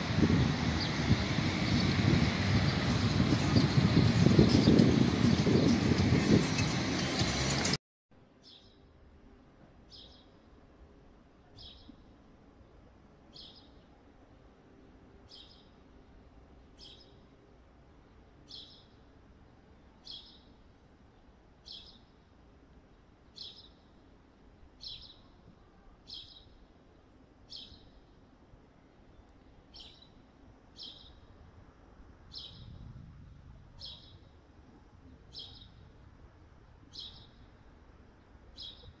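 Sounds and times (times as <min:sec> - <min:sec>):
small bird chirping: 0:08.4 - 0:08.8, 0:09.9 - 0:10.4, 0:13.3 - 0:13.8, 0:15.3 - 0:15.8, 0:16.8 - 0:17.2, 0:18.5 - 0:19.0, 0:20.0 - 0:20.6, 0:21.6 - 0:22.1, 0:23.4 - 0:23.9, 0:24.8 - 0:25.4, 0:26.1 - 0:26.6, 0:27.5 - 0:28.1, 0:29.2 - 0:30.2, 0:30.8 - 0:31.3, 0:33.8 - 0:34.3, 0:35.3 - 0:35.8, 0:36.9 - 0:37.5, 0:38.5 - 0:39.0.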